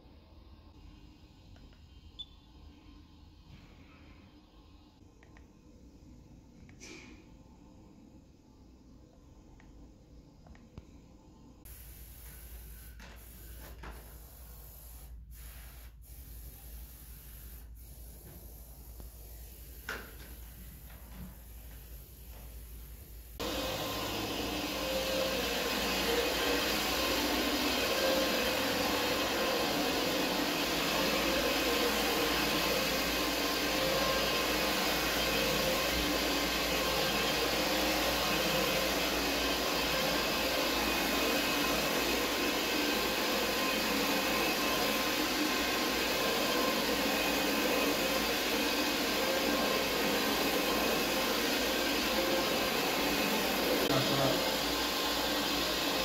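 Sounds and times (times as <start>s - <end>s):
carpet-cleaning machine running: 23.4s - 56.0s.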